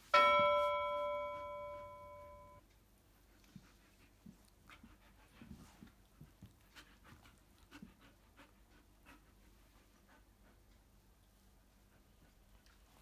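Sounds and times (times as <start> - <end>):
dog panting: 3.1 - 13.0.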